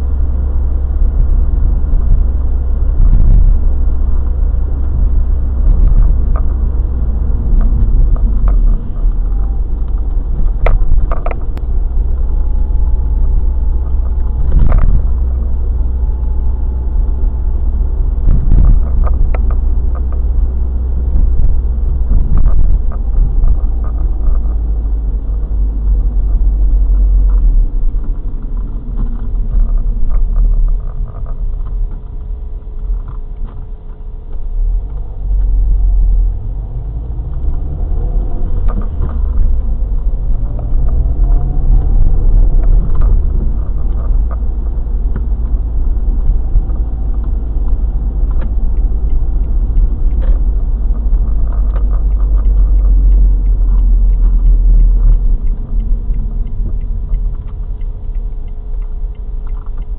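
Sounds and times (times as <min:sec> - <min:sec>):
car engine drone: 0:00.0 - 0:59.9
tyre and road noise: 0:00.0 - 0:59.9.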